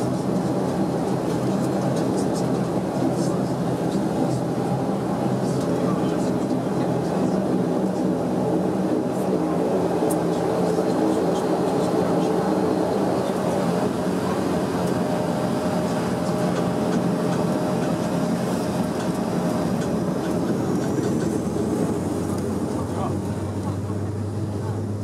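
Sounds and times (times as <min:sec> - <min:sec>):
turboprop engines droning: 0:00.0 - 0:25.0.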